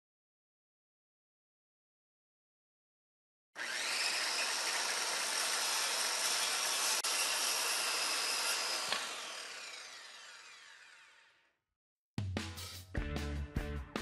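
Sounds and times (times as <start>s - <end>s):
power saw whining: 3.6s - 11.5s.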